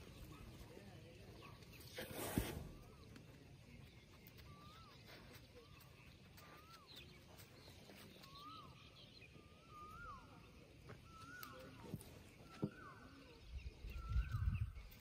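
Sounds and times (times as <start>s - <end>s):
bird whistled call: 8.1s - 15.0s.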